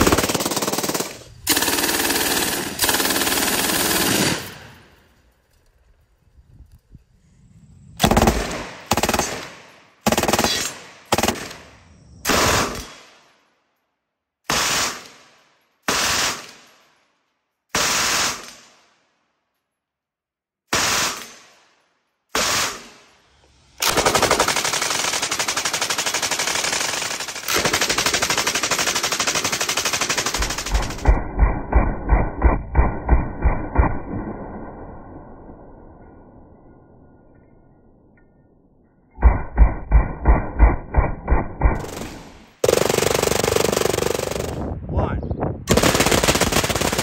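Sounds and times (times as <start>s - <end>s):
machine gun firing: 0.0s - 4.9s, 8.0s - 13.2s, 23.8s - 34.4s, 39.2s - 44.6s, 45.7s - 47.0s.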